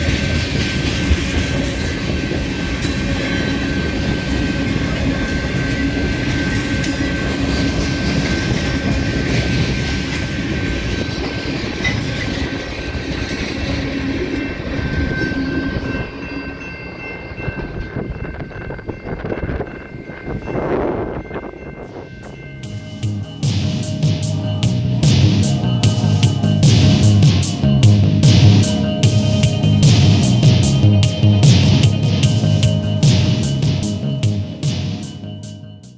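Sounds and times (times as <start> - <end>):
wheels clicking over rail joints: 0.0 - 23.4
freight train rolling past: 0.0 - 35.9.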